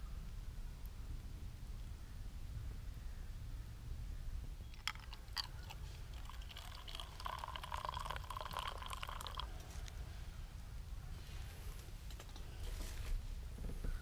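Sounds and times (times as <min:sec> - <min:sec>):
water pouring into metal mug: 0:04.8 - 0:09.5.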